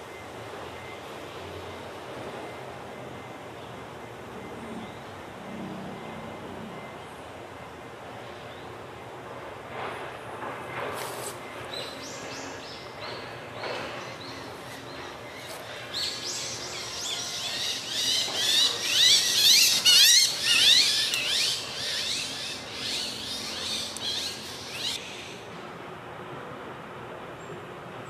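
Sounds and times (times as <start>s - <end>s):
hawk calling: 16.7s - 25.0s.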